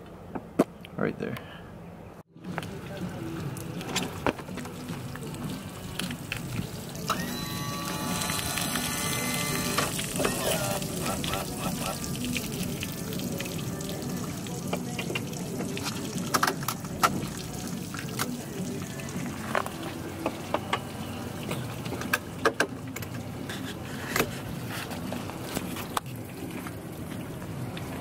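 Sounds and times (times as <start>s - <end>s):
water dripping onto wet pavement: 10.0s - 19.1s.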